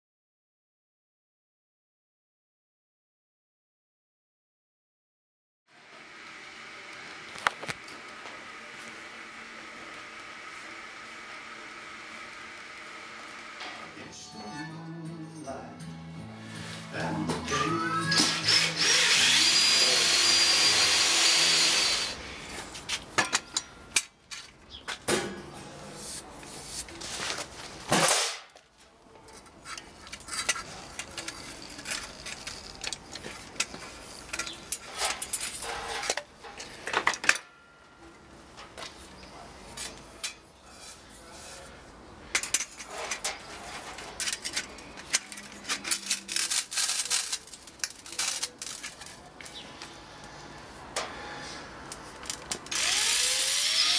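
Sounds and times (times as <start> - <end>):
cordless drill boring metal: 18.2 - 22.2, 52.7 - 53.9.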